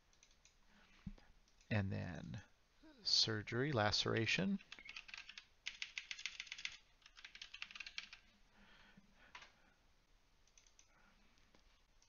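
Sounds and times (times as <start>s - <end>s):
computer keyboard typing: 4.1s - 8.2s, 10.5s - 10.9s.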